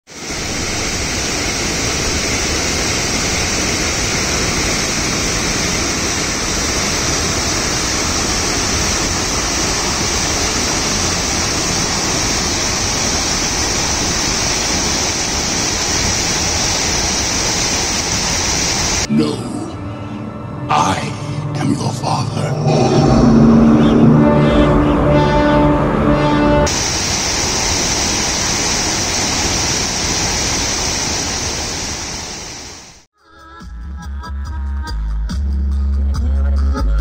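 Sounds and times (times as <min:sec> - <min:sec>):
water rushing over stone weir: 0:00.1 - 0:19.1, 0:26.7 - 0:33.0.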